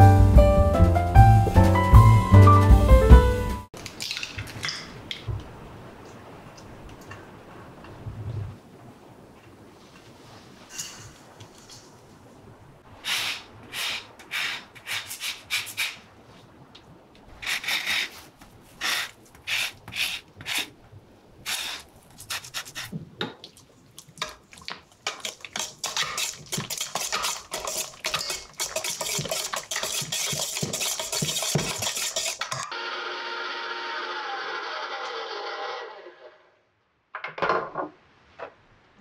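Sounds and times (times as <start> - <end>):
zester scraping orange peel: 21.5 - 22.9, 25.2 - 32.7.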